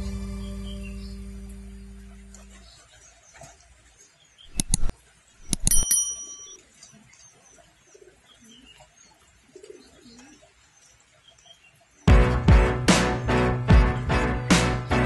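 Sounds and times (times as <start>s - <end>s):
metallic clink: 4.5s - 6.6s.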